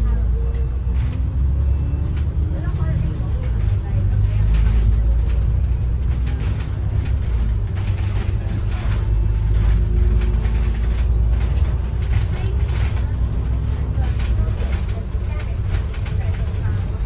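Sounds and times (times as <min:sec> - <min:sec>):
bus body rattling: 0:00.0 - 0:17.0
bus engine and road rumble: 0:00.0 - 0:17.0.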